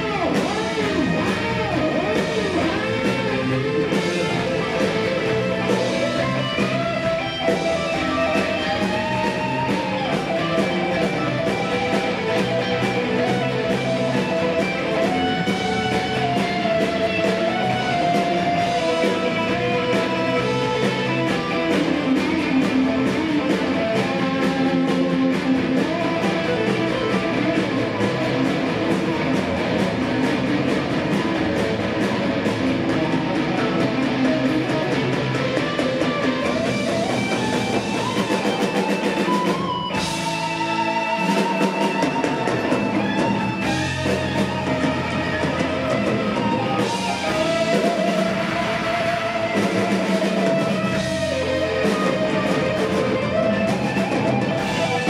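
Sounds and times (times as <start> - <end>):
electric guitar lead line: 0.0 - 55.0
live rock band playing: 0.0 - 55.0
steady drum beat: 0.0 - 55.0.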